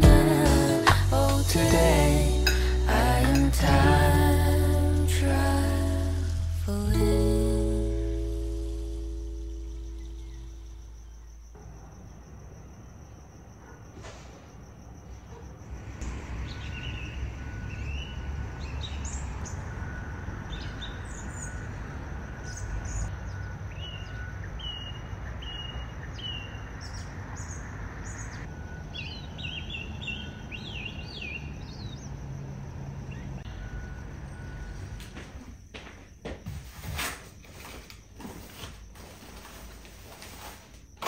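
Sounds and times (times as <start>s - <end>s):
small birds chirping: 9.3s - 11.4s, 22.5s - 32.3s.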